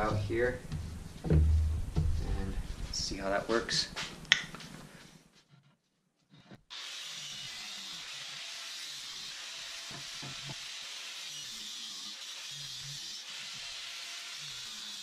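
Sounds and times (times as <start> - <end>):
knock: 0.7 - 2.5
angle grinder cutting metal: 6.7 - 15.0.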